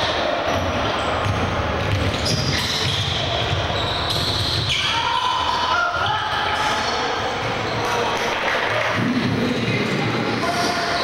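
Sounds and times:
sneakers squeaking: 0.0 - 8.9
voices in a hall: 0.0 - 11.0
basketball bouncing on wood floor: 1.2 - 4.7.

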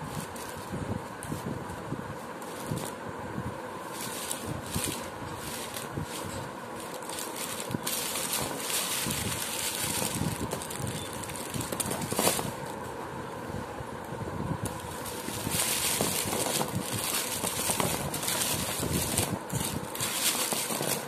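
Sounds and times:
sweet wrappers crinkling: 3.8 - 12.8, 14.7 - 21.0.

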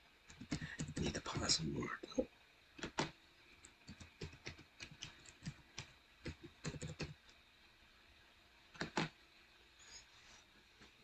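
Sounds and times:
keyboard key clicks: 2.8 - 3.1.

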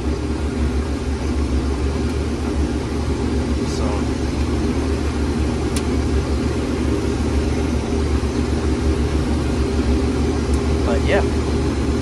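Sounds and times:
combine harvester droning: 0.0 - 12.0.

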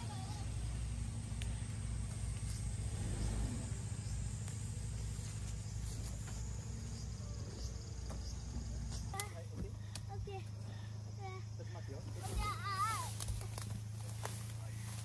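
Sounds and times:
engine running at low revs: 0.0 - 15.0.

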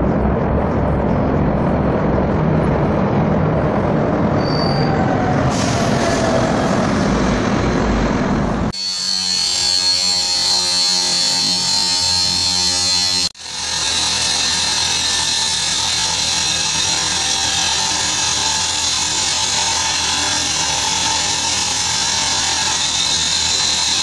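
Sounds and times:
angle grinder cutting steel: 8.7 - 24.0.

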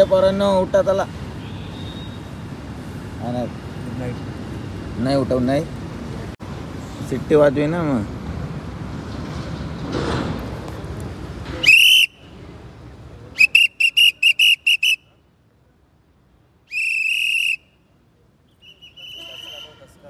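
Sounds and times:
background noise: 0.0 - 20.0
whistle blasts: 1.4 - 2.3, 11.6 - 12.3, 13.4 - 15.1, 16.7 - 17.8, 18.5 - 19.9.

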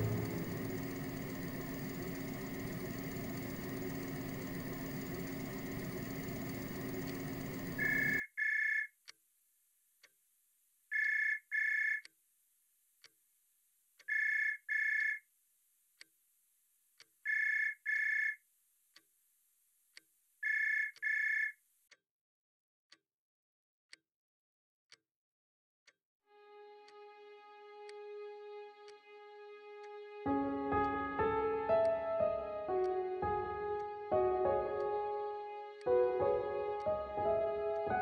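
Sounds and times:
clock ticking: 0.0 - 8.2, 35.8 - 37.9
telephone ringing: 0.0 - 8.9.

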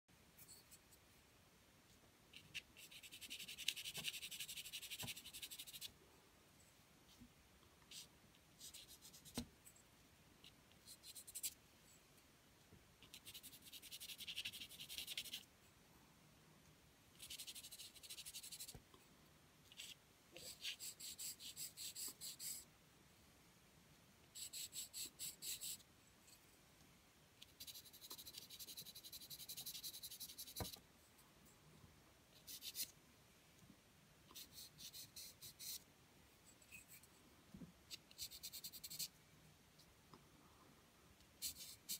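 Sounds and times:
pencil scratching on paper: 2.4 - 5.9, 13.1 - 15.4, 17.2 - 18.8, 19.8 - 22.7, 24.4 - 25.8, 27.4 - 30.8, 32.4 - 32.9, 34.3 - 35.8, 37.9 - 39.1, 41.4 - 41.9.

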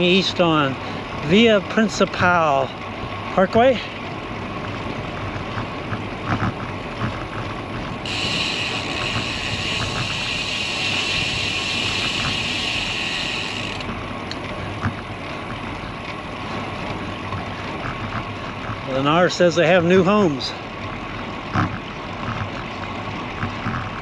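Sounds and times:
bike tyres rolling on concrete: 4.1 - 24.0
steady high hiss: 8.1 - 13.9.

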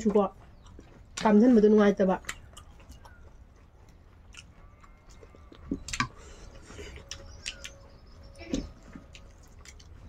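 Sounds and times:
chewing clicks: 0.0 - 1.4, 2.1 - 6.3, 6.9 - 8.3, 9.0 - 10.0.

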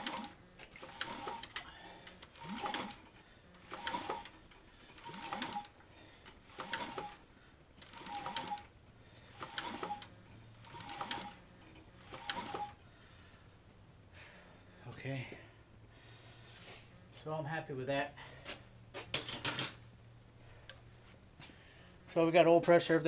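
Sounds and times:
engine squeaking as turned by hand: 0.0 - 12.8.

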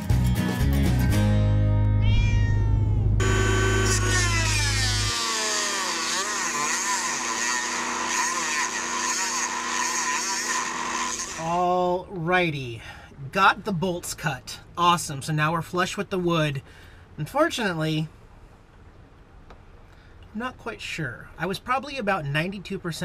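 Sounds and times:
intro music: 0.0 - 2.0
rotary tool cutting metal bolt: 3.2 - 11.5.

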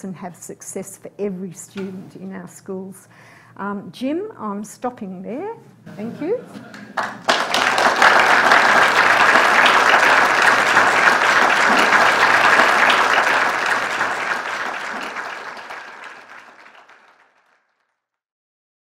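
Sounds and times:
audience applauding: 6.6 - 17.8.

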